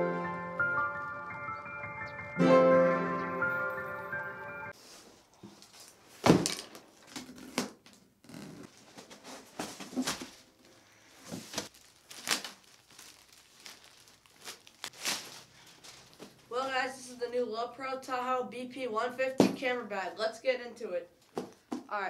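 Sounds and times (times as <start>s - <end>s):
plastic bag crinkling: 8.7s - 16.5s.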